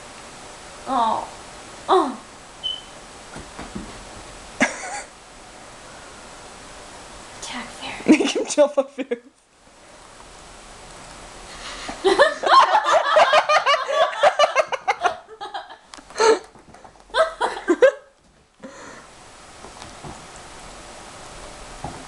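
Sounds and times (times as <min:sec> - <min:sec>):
people laughing: 0:12.0 - 0:15.8.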